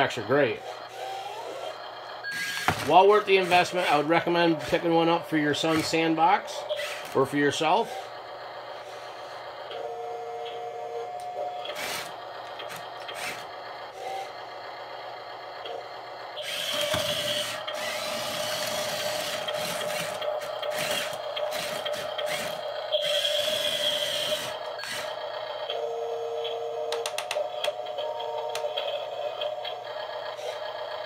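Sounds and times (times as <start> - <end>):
steady whine: 0.0 - 31.0
small electric motors whirring: 0.6 - 8.1, 11.6 - 14.4, 16.4 - 25.2, 30.4 - 30.7.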